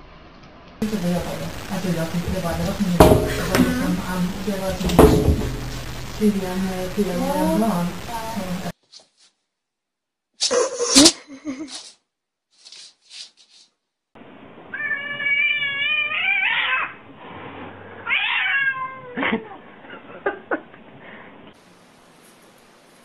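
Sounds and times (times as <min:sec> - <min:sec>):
sharp knock: 0:02.2 - 0:03.8, 0:04.8 - 0:06.3
cat meowing: 0:14.7 - 0:17.0, 0:18.0 - 0:19.2.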